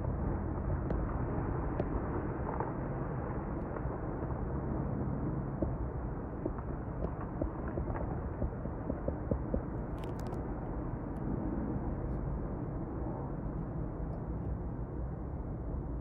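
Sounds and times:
avalanche low rumble: 0.0 - 16.0
brief crackle: 10.0 - 10.4.

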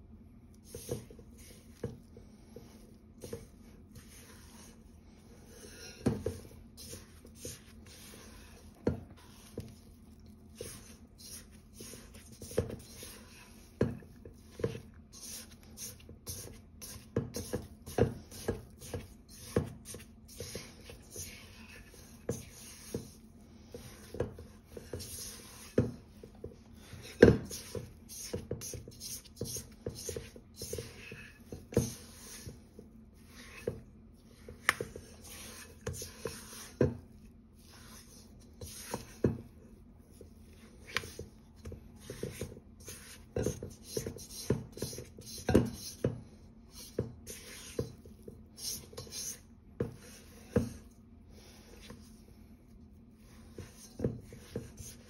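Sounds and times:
spatula scraping metal bowl: 2.6 - 26.0, 26.7 - 37.0, 37.6 - 39.4, 42.0 - 46.1, 46.7 - 50.8.

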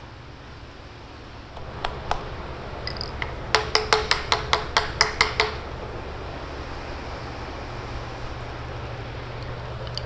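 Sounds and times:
hammer tapping on pipe fitting: 2.9 - 5.6.

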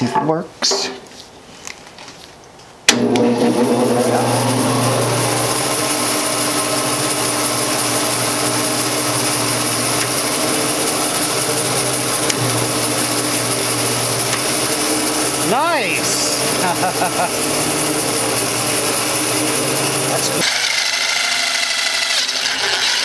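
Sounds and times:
bandsaw motor running: 2.9 - 23.0.

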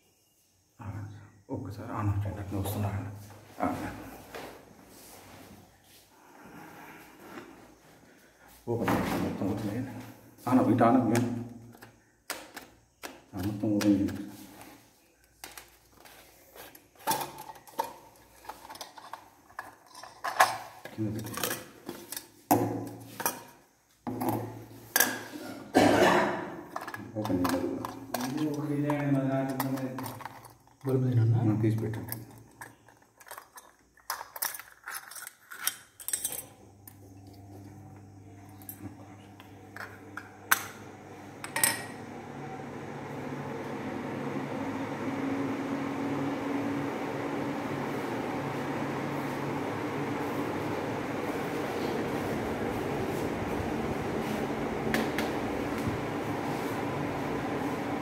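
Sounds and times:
metal parts clinking on tiles: 17.0 - 22.3, 31.8 - 36.5.

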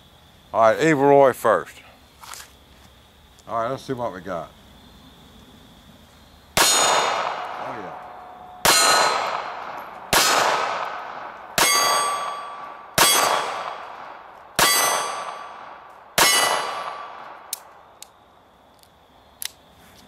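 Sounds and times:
pistol shots: 6.6 - 17.7
steel target ringing: 8.3 - 9.5, 11.6 - 13.9, 14.6 - 15.6, 16.2 - 17.0
faint pistol clicks: 18.8 - 19.6.

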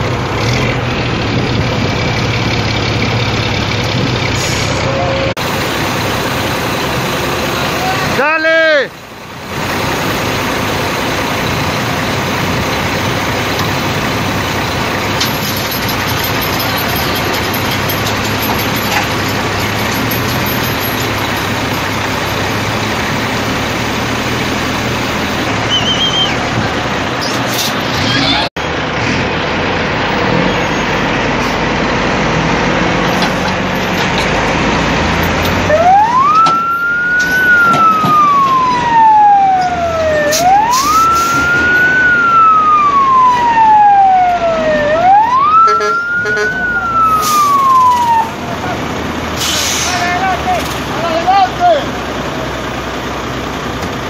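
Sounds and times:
road and wind noise: 0.0 - 54.0
emergency vehicle siren wailing: 4.7 - 27.2, 32.4 - 51.8.

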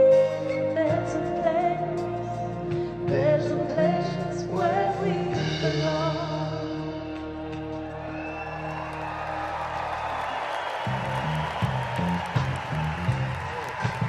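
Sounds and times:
person singing: 0.0 - 7.4
live band playing slow ballad: 0.0 - 8.1.

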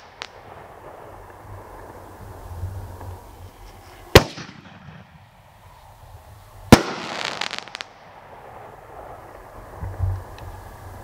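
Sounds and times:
firework crackling and pops: 0.0 - 11.0
firework shell bursting: 3.6 - 5.3.

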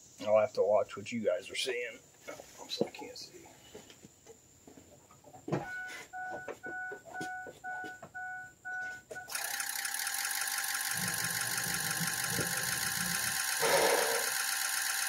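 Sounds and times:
diesel engine cranking and running: 9.3 - 15.0.

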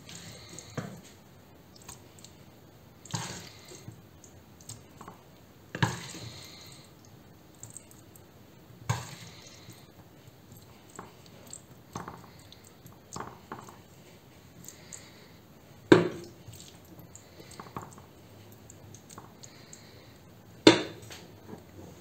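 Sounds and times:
wooden spatula spreading stuffing: 8.9 - 15.2.

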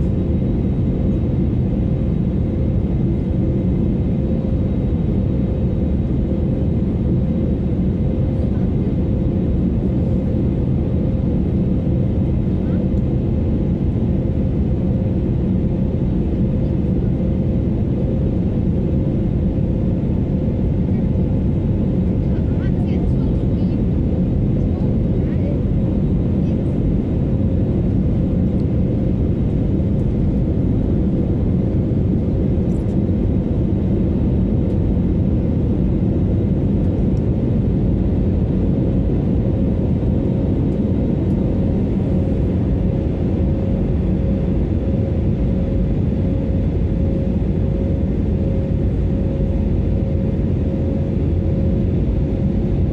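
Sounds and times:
airliner engines rumbling: 0.0 - 52.9
constant cabin hum: 0.0 - 52.9.

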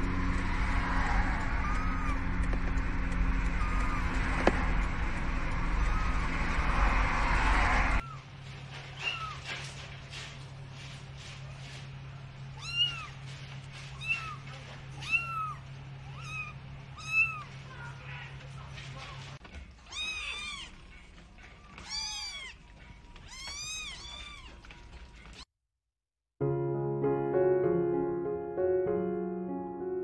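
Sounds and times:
car running noise: 0.0 - 10.4
faint short cries: 1.6 - 2.2
kitten mewing: 1.6 - 2.2, 13.9 - 18.0, 19.9 - 20.8.

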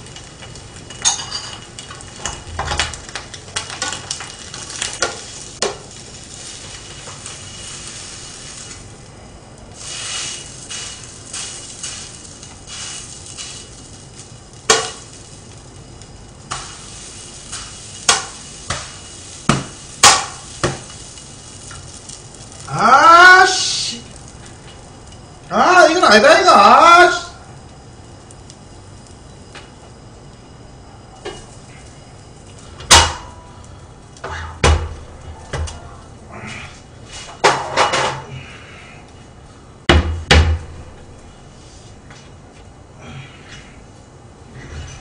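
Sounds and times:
frying pan knocking: 14.7 - 15.0, 18.1 - 18.9, 19.5 - 20.9, 32.9 - 33.4, 34.3 - 35.7, 39.9 - 40.9
utensil scraping frying pan: 34.2 - 34.6.

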